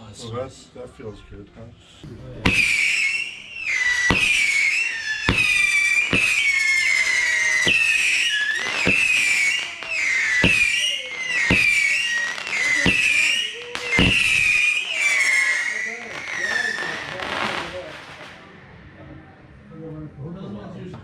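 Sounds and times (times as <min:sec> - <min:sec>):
shrill firework whistles: 0:02.3 - 0:18.8
firework launch pops: 0:02.4 - 0:14.9.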